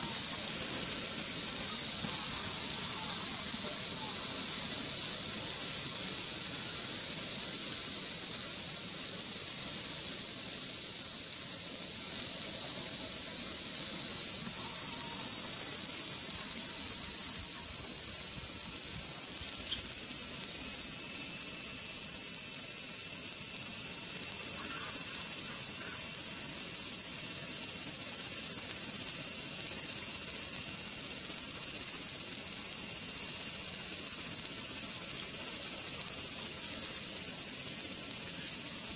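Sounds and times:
high-pitched insect chorus: 0.0s - 38.9s.

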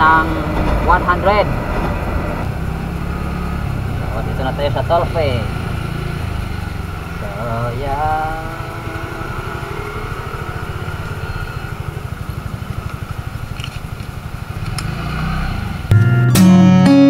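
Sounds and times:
scooter engine idling: 0.0s - 15.9s
acoustic guitar music: 15.9s - 17.0s.

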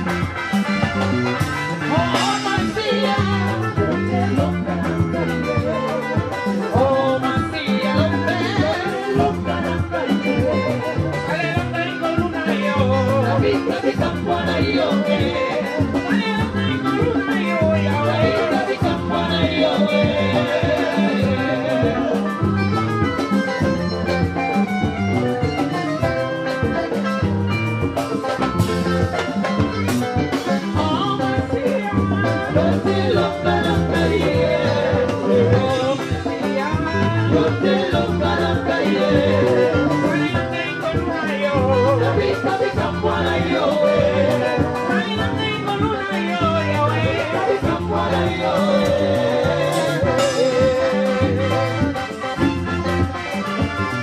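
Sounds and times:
live rock band: 0.0s - 54.0s
women singing together: 6.8s - 22.3s, 30.8s - 51.5s.

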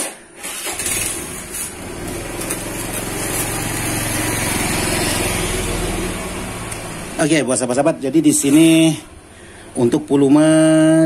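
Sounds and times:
scooter engine running: 0.4s - 7.2s.

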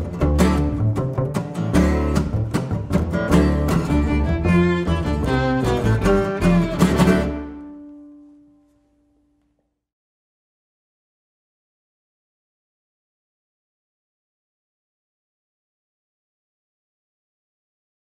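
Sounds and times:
upright double bass: 0.0s - 7.8s
fiddle: 0.0s - 8.2s
acoustic guitar: 0.0s - 9.4s.

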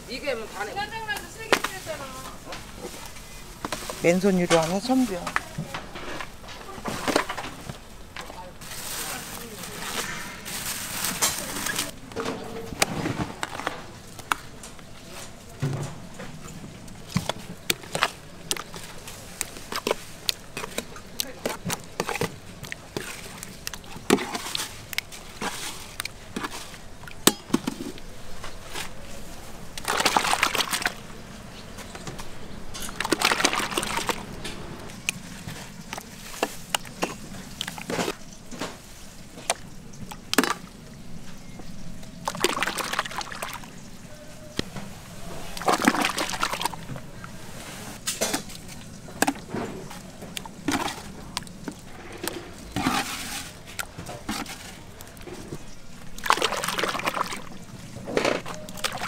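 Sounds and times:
broth splashing into bowls: 29.6s - 31.2s, 32.8s - 38.3s, 38.9s - 44.1s, 45.4s - 47.4s, 48.0s - 59.0s
ladle clinking on bowls: 32.7s - 34.2s.

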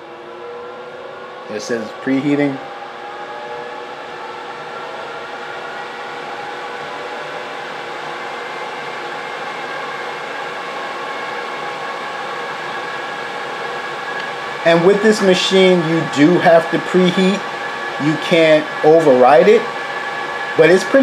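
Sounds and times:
air fryer fan whirring: 0.0s - 21.0s
constant tonal hum: 0.0s - 21.0s.

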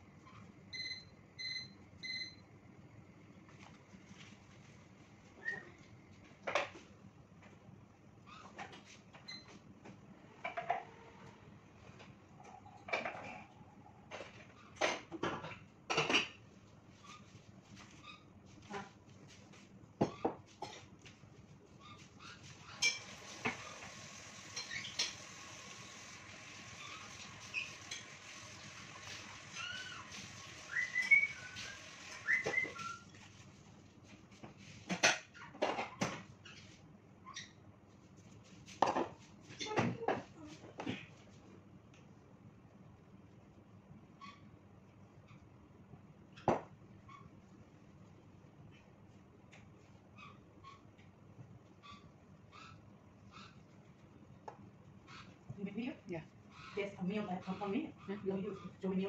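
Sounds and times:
whistled chirps: 30.7s - 33.1s.

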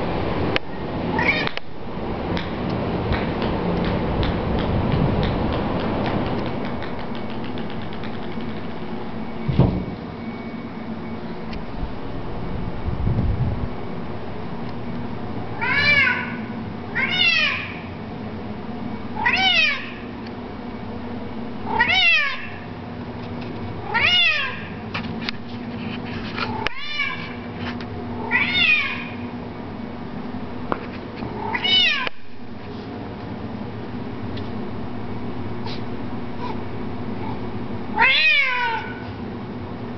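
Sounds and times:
steady low hum: 0.0s - 39.9s
cat meowing loudly: 1.1s - 1.6s, 15.6s - 17.9s, 19.2s - 20.1s, 21.7s - 22.6s, 23.8s - 24.8s, 26.6s - 27.4s, 28.2s - 29.2s, 37.9s - 39.1s.

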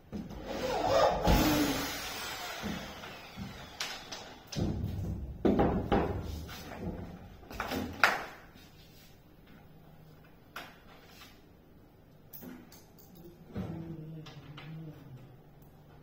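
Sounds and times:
heavy wooden thumps and knocks: 4.6s - 7.8s.

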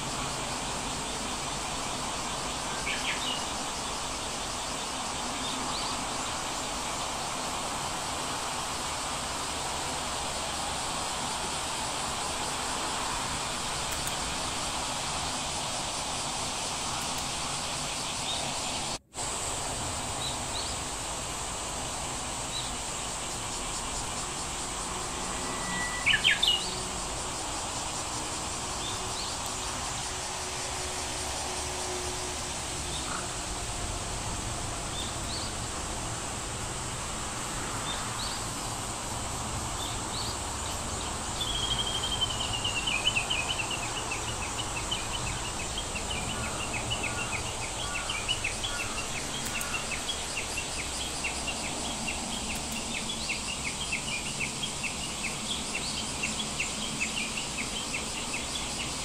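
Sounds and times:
steady background hiss: 0.0s - 59.0s
sharp high squeaks: 25.1s - 26.9s
faint high chirps: 25.3s - 26.8s.

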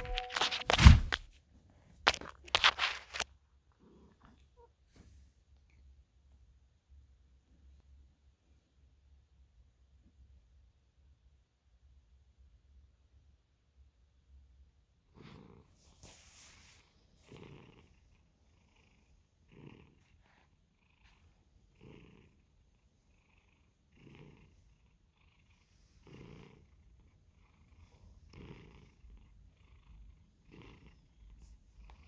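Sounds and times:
cat purring: 2.5s - 4.8s, 14.9s - 32.0s.

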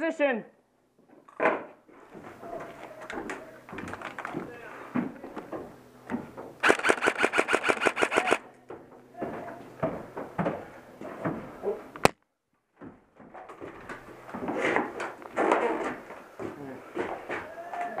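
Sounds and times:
airsoft rifle firing full auto: 6.6s - 8.4s
sharp click: 6.6s - 8.4s.

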